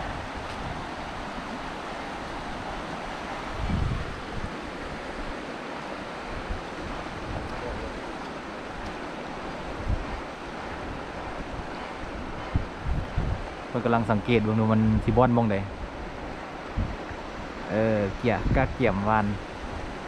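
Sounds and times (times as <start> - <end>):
wind blowing across open water: 0.0 - 20.0
wind buffeting microphone: 0.0 - 20.0.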